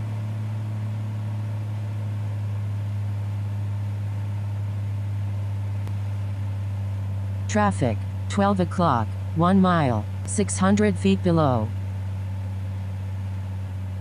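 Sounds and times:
light aircraft engine drone: 0:00.0 - 0:14.0.

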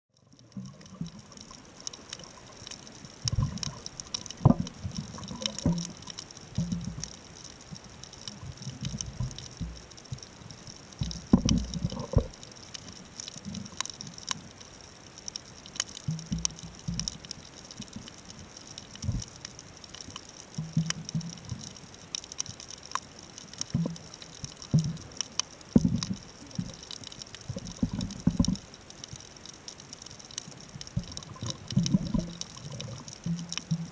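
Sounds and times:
water gurgling and sloshing: 0:00.1 - 0:14.5, 0:22.7 - 0:33.9
fine underwater clicks crackling: 0:00.1 - 0:33.9.

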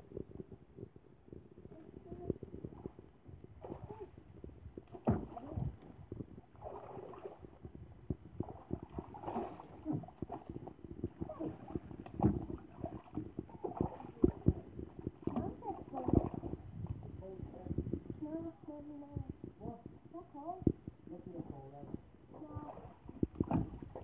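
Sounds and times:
water splashing in paddling pool: 0:02.6 - 0:07.7, 0:08.3 - 0:17.2, 0:22.3 - 0:24.0
dull thumps: 0:23.1 - 0:24.0.

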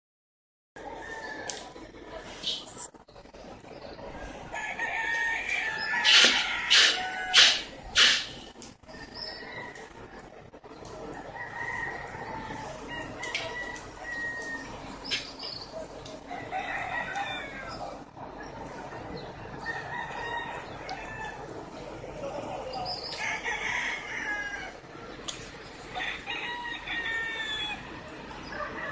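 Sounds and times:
rooster crowing: 0:04.5 - 0:08.3, 0:11.1 - 0:14.9, 0:16.3 - 0:17.8, 0:19.6 - 0:21.4, 0:22.9 - 0:24.8, 0:25.9 - 0:28.9.

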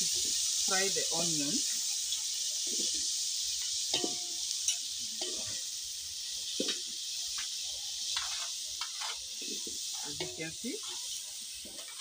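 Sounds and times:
onions sizzling in oil: 0:00.0 - 0:12.0
wooden spoon scraping pan: 0:08.2 - 0:12.0.

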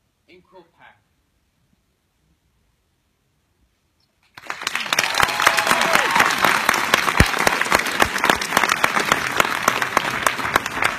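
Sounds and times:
audience applause: 0:04.3 - 0:10.9.

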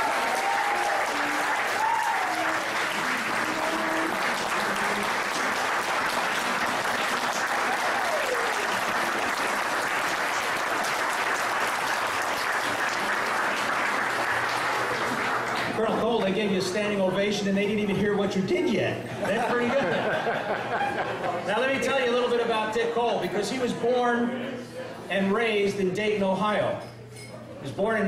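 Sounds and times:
audience applauding: 0:00.0 - 0:15.9.

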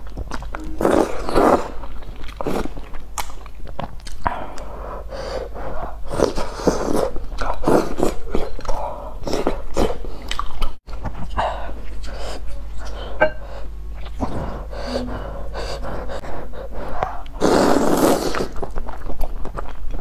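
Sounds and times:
chewing: 0:07.3 - 0:10.8, 0:17.0 - 0:20.0
slurping noodles: 0:17.3 - 0:18.8.

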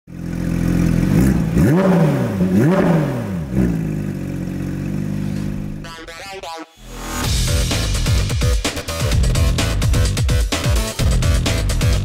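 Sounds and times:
sports car engine idling and revving: 0:00.1 - 0:06.0.

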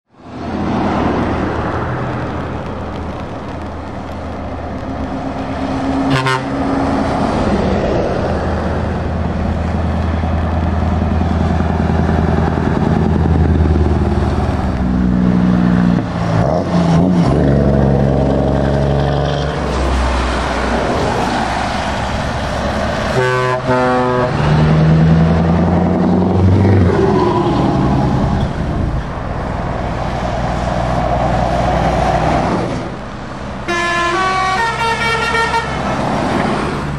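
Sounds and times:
diesel truck engines: 0:00.1 - 0:36.9
tyres hissing on wet road: 0:00.2 - 0:26.0, 0:26.8 - 0:36.9
truck horn short blasts: 0:06.1 - 0:06.6, 0:23.2 - 0:24.3, 0:33.7 - 0:35.8.

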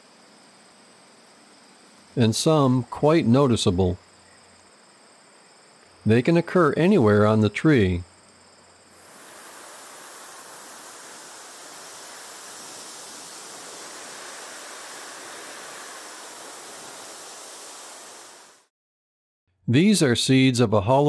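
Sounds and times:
steady rushing noise: 0:08.9 - 0:18.7.

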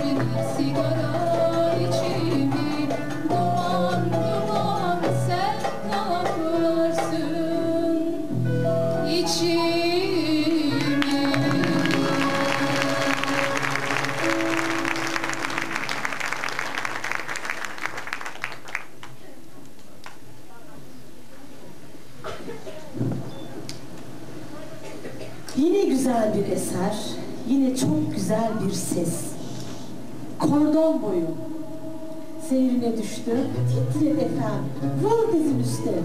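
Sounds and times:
choir singing: 0:10.8 - 0:14.6
audience applause: 0:10.9 - 0:19.3.

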